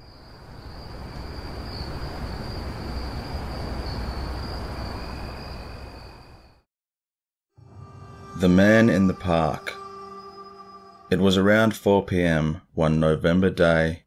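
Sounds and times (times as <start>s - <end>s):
insect trill: 0.0s - 6.7s, 7.6s - 11.7s
low rumbling noise: 7.6s - 11.8s.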